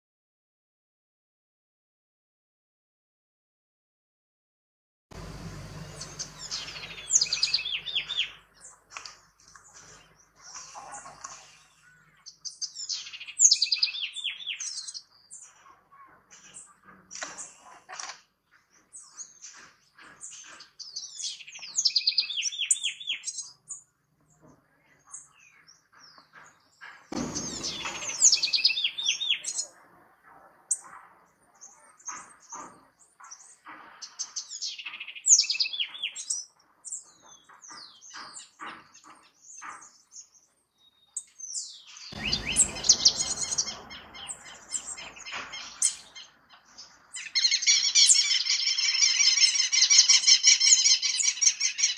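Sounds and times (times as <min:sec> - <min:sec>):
wren singing trills: 0:05.2 - 0:08.8, 0:12.3 - 0:15.5, 0:20.3 - 0:23.8, 0:27.2 - 0:29.7, 0:41.2 - 0:51.9
short bird chirps: 0:05.7 - 0:08.4, 0:27.3 - 0:29.7
low rushing noise: 0:42.2 - 0:45.4.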